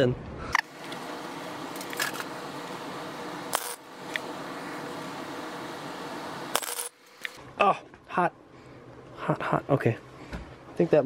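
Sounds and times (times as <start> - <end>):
welder arc crackling: 0.6 - 7.4.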